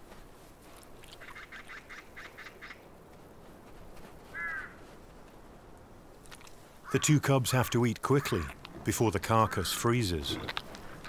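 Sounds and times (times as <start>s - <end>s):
raven knocking calls: 1.0s - 2.9s, 4.3s - 4.9s, 6.8s - 11.0s
raven croak: 4.3s - 4.8s, 6.8s - 11.0s.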